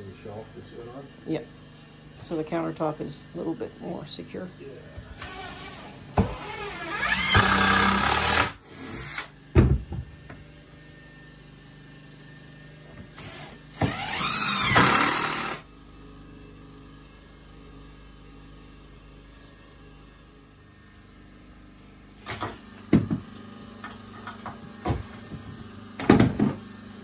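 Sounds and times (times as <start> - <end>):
cordless drill driving screws: 5.2 - 9.3, 13.1 - 15.6.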